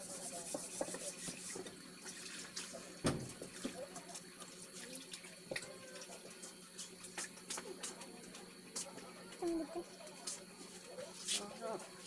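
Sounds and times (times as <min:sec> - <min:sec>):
knock: 0:03.0 - 0:03.4.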